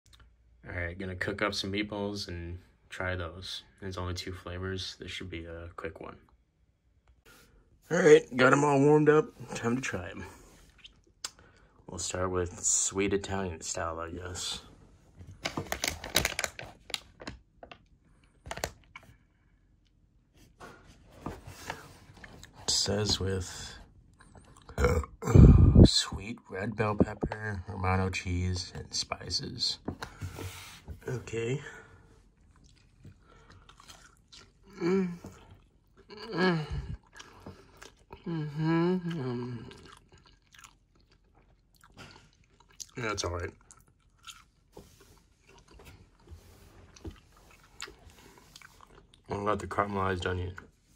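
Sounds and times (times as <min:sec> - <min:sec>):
plastic bag crinkling: 0:15.4 - 0:17.3
person chewing: 0:32.3 - 0:49.3.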